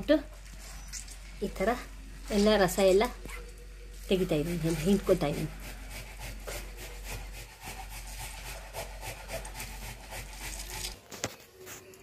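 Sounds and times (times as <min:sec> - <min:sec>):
hands squeezing wet gourd: 0:07.5 - 0:11.3.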